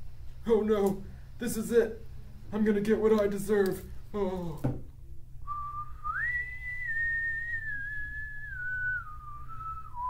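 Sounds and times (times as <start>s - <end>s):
long whistled tone: 5.4s - 10.0s.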